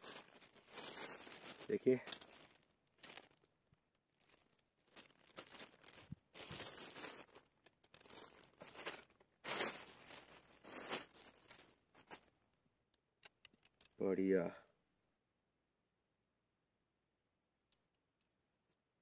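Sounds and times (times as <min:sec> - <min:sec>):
packing material crinkling and tearing: 0:00.0 - 0:12.4.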